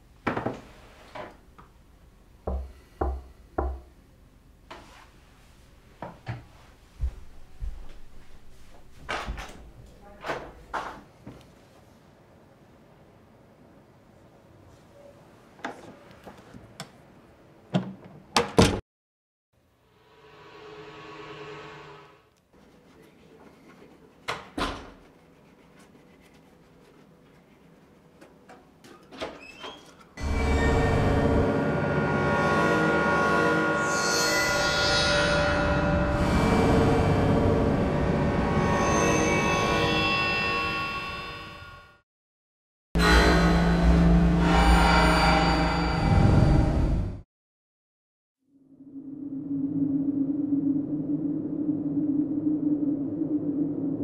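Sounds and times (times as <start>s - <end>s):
footsteps on wooden floor: 6.0s - 9.5s.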